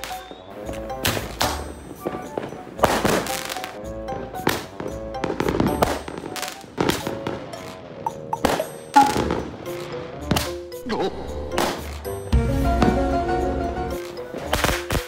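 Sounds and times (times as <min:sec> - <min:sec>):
fireworks bangs: 0:00.0 - 0:03.8, 0:04.4 - 0:10.6
background music: 0:00.0 - 0:15.0.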